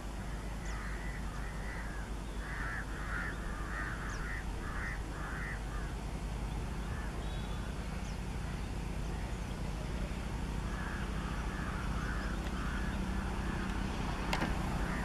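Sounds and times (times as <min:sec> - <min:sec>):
crow cawing: 0:00.3 - 0:06.0, 0:10.6 - 0:13.8, 0:14.8 - 0:15.0.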